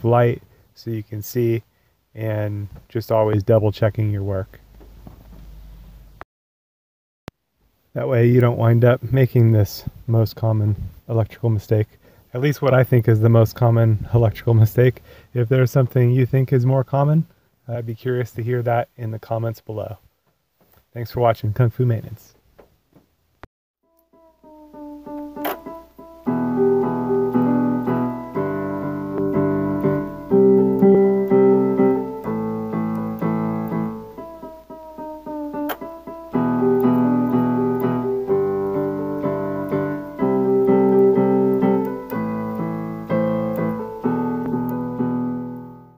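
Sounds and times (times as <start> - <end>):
keyboard chords: 23.8 - 45.9.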